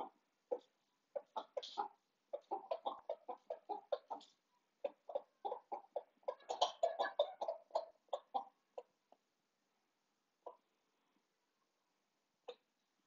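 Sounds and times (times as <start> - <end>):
chickens clucking: 0.0 - 9.1, 10.4 - 10.7.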